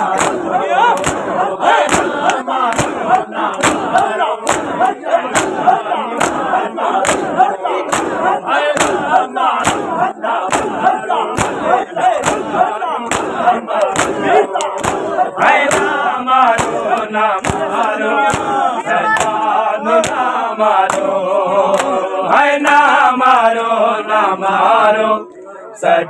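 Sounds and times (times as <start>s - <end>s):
men's voices calling out: 0.0s - 20.5s
men slapping their chests: 0.0s - 22.9s.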